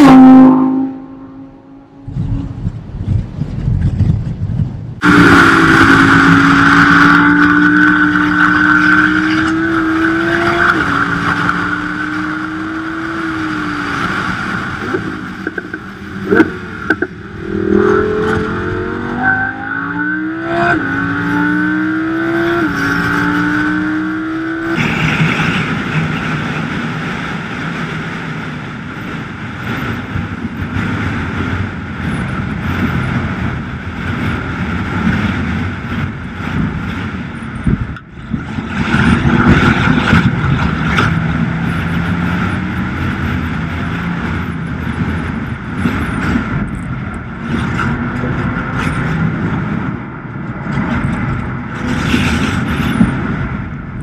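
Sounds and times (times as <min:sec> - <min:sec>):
road and wind noise: 0:00.0 - 0:54.0
car engine accelerating: 0:05.0 - 0:30.2.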